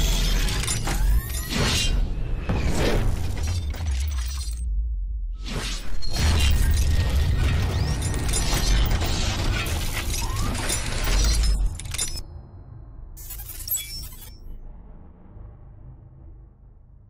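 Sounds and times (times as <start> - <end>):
deep bass rumble: 4.6 - 5.4.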